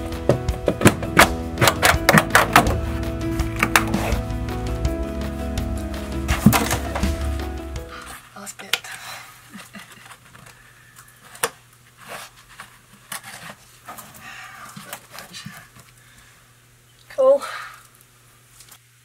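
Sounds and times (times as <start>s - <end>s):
faint steady hum: 7.5s - 19.0s.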